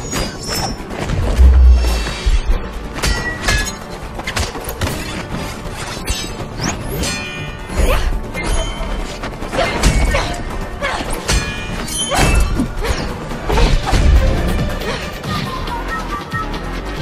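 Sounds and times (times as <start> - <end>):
action film music: 0.0 - 17.0
hit and impact effects: 1.1 - 3.4
heavy low thud: 1.2 - 3.0.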